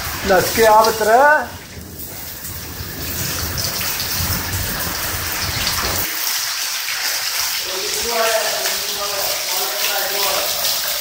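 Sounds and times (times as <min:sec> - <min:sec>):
heavy rain on concrete: 0:00.0 - 0:11.0
low rumble: 0:01.5 - 0:06.0.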